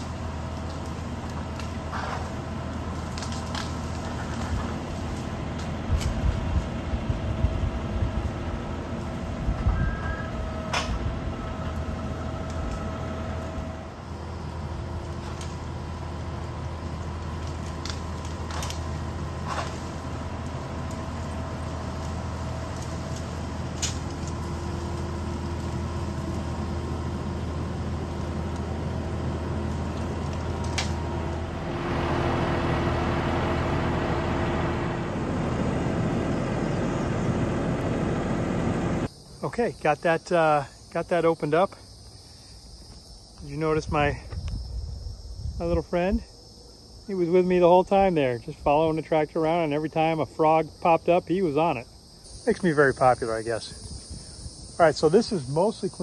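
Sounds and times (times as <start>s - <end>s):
debris ticking and cracking: 0.0s - 6.8s, 14.1s - 31.4s
tractor diesel engine running: 0.0s - 39.7s, 47.6s - 56.0s.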